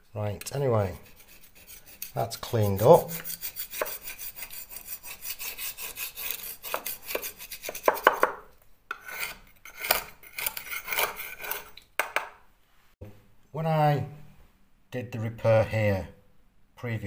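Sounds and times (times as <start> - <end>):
scraper scraping plaster off wall: 0.8 - 8.2.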